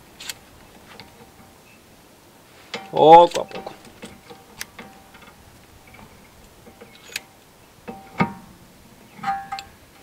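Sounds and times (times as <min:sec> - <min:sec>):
metallic clicks and clinks of tool: 0:02.7 - 0:07.3.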